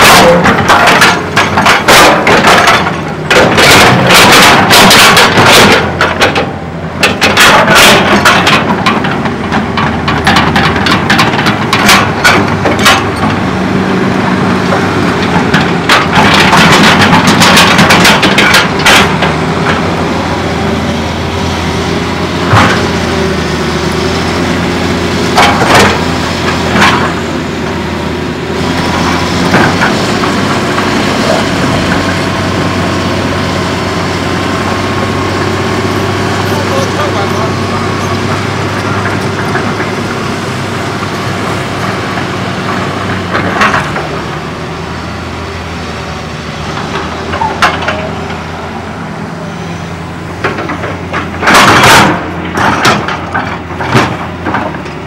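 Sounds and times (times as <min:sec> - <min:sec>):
knocks and scrapes on rubble: 0:00.0 - 0:13.4
excavator diesel engine running: 0:00.0 - 0:55.0.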